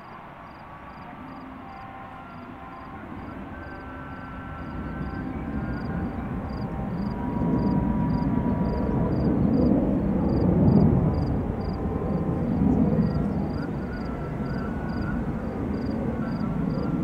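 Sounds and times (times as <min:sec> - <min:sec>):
distant aircraft rumble: 0:00.0 - 0:17.0
insect chirping: 0:06.5 - 0:09.3, 0:11.1 - 0:11.8, 0:15.8 - 0:16.8.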